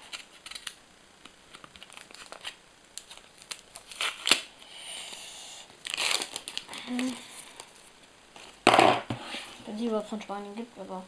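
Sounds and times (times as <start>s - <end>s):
paper packet crinkling: 0.0s - 0.8s, 1.5s - 4.5s, 5.8s - 7.7s
paper tearing: 5.9s - 6.5s.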